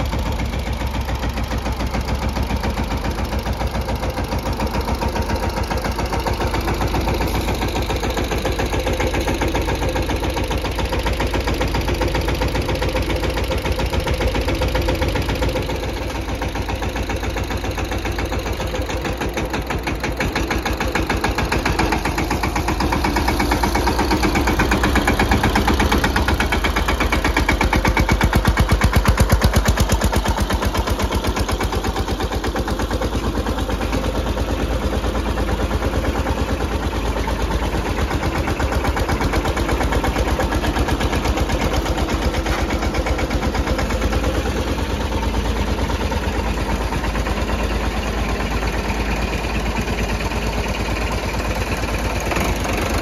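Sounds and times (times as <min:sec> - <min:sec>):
tractor engines under load: 0:00.0 - 0:53.0.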